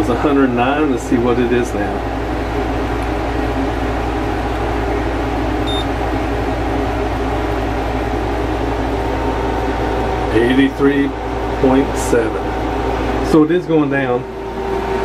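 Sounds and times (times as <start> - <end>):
air conditioner humming: 0.0 - 15.0
thermometer beep: 5.6 - 5.9.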